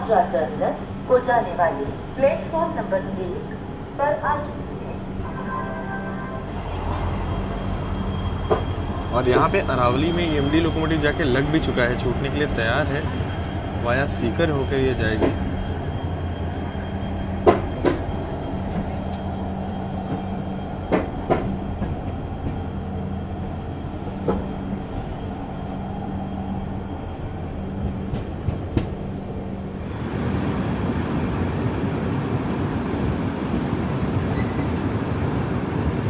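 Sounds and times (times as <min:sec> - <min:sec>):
train rumbling on rails: 0:00.0 - 0:36.0
train wheels clacking: 0:08.3 - 0:15.9, 0:17.2 - 0:22.8, 0:27.7 - 0:29.8.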